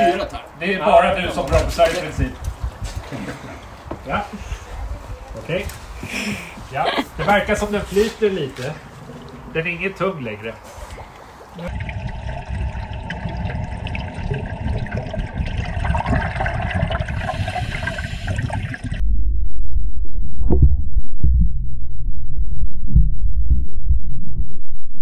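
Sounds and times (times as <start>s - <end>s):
pool water sloshing and bubbling: 8.8s - 9.6s, 10.9s - 19.0s
underwater thumps and bubbling: 11.7s - 19.1s, 20.4s - 21.8s.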